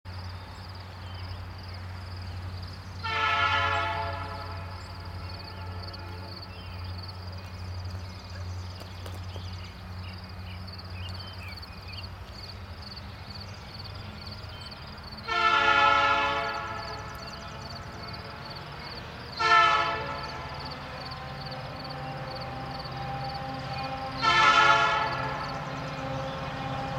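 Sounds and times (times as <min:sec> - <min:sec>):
low train rumble: 0:00.1 - 0:26.9
locomotive horn blasts: 0:03.0 - 0:06.9, 0:15.2 - 0:26.9.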